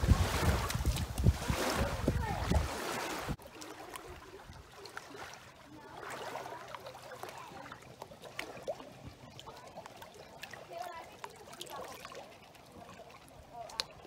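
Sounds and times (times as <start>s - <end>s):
wind rushing on microphone: 0.0s - 3.4s
dog wading in shallow water: 0.0s - 14.0s.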